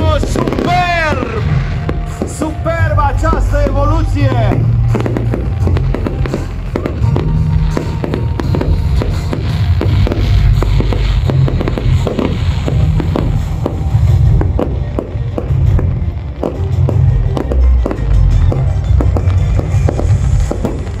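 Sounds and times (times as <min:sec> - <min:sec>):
fireworks popping and crackling: 0:00.0 - 0:21.0
loud music with heavy bass: 0:00.0 - 0:21.0.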